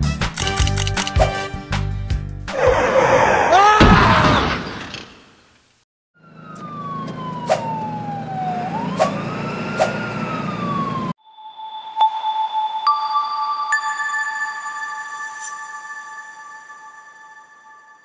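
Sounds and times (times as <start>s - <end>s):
sharp clicks: 0.4s - 1.3s
ambulance siren wailing: 6.2s - 11.2s.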